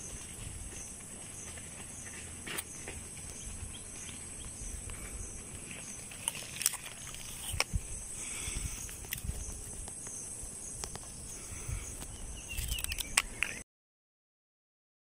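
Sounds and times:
faint pulsing chirp: 0:00.0 - 0:13.6
insects droning high-pitched: 0:00.0 - 0:13.6
sharp clicks or snaps: 0:12.5 - 0:13.6.

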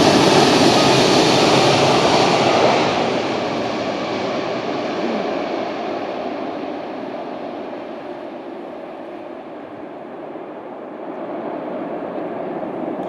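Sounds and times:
distant jet engine rush: 0:00.0 - 0:13.0.

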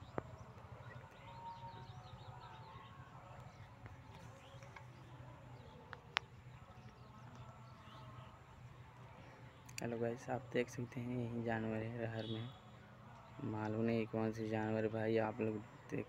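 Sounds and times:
low steady hum: 0:00.0 - 0:16.0
small birds chirping: 0:00.0 - 0:16.0.

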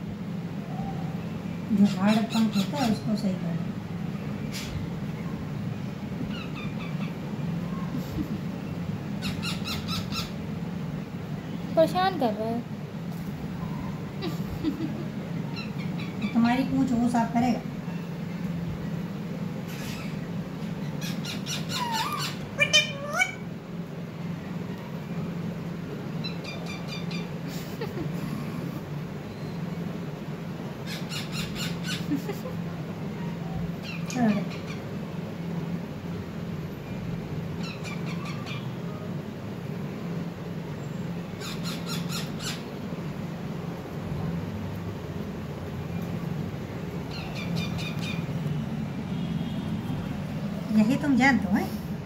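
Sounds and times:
steady low hum: 0:00.0 - 0:52.0
parakeets squawking and chirping: 0:01.8 - 0:03.1, 0:06.2 - 0:07.9, 0:08.8 - 0:10.6, 0:15.4 - 0:16.7, 0:19.6 - 0:23.5, 0:26.2 - 0:27.8, 0:30.8 - 0:32.3, 0:33.2 - 0:35.0, 0:37.6 - 0:38.8, 0:41.4 - 0:42.8, 0:47.0 - 0:48.5.

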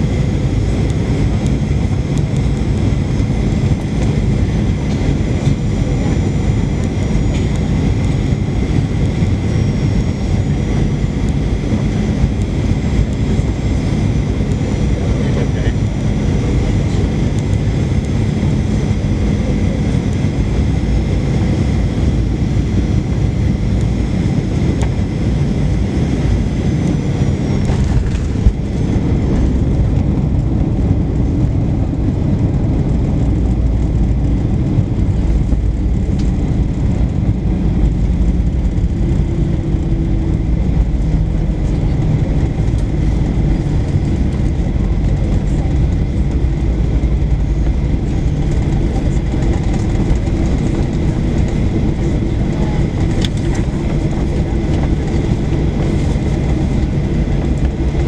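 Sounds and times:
aircraft rolling rumble: 0:00.0 - 0:58.0
jet engines whining: 0:00.0 - 0:58.0
loud cabin rush: 0:27.6 - 0:33.1.

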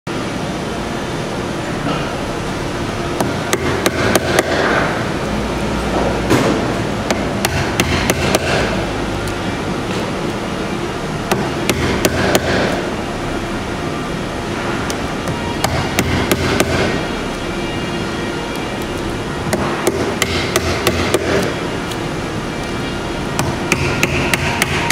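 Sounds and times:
mallet tapping chisel: 0:19.5 - 0:21.5, 0:23.4 - 0:24.9.

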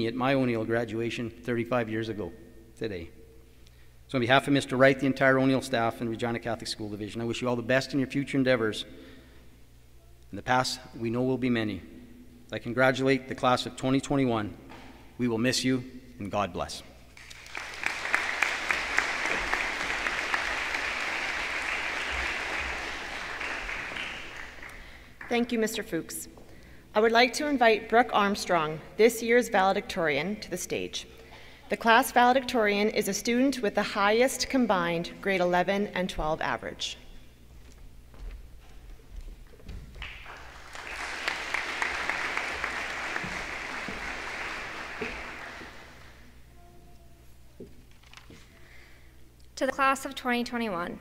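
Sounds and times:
audience applauding: 0:17.2 - 0:25.3, 0:40.0 - 0:46.3.

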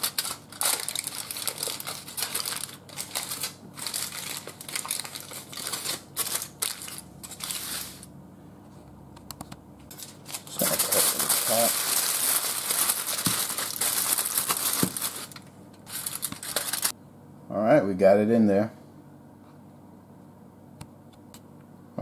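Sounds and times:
aluminium foil crinkling: 0:00.0 - 0:08.1, 0:09.9 - 0:16.9.

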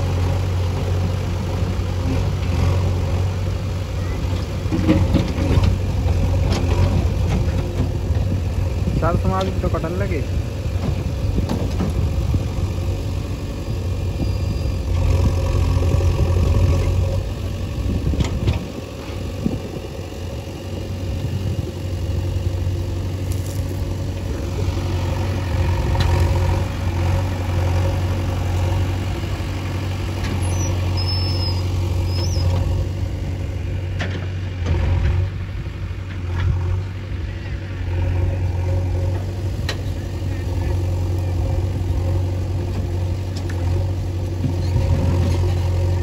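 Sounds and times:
diesel engine droning: 0:00.0 - 0:46.0.

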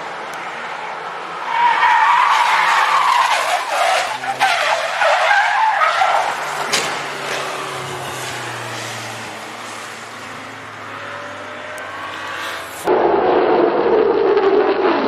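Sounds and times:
tyres squealing: 0:01.5 - 0:07.9.

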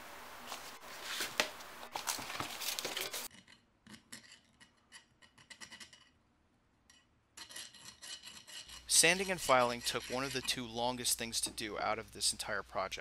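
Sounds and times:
scraping and rustling: 0:00.4 - 0:03.3
sanding metal by hand: 0:07.4 - 0:11.0.

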